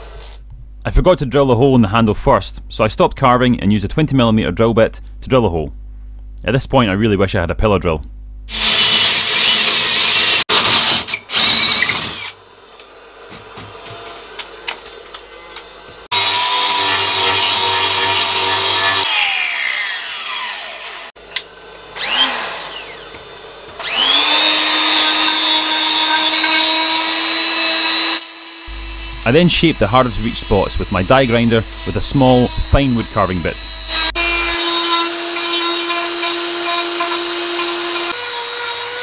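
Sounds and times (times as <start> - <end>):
angle grinder whine: 8.5 - 12.4, 13.8 - 21.2, 21.9 - 39.0
drill boring into wood: 8.5 - 12.4, 16.1 - 21.2, 22.0 - 23.1, 23.8 - 39.0
power tool motor whine: 8.5 - 12.4, 16.1 - 21.2, 21.9 - 39.0.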